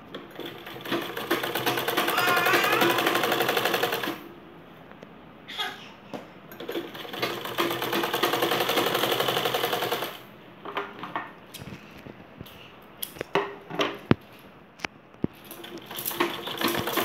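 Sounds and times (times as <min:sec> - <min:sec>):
sewing machine stitching: 0:00.2 - 0:04.2, 0:06.6 - 0:10.3, 0:15.5 - 0:17.0.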